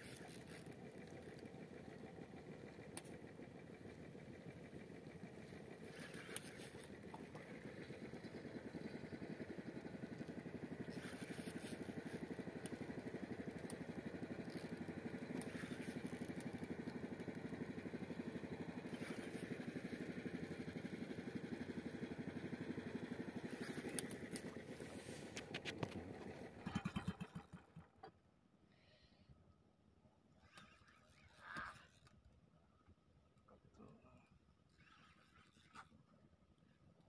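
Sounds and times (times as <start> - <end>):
boat engine idling: 0.0 - 28.1.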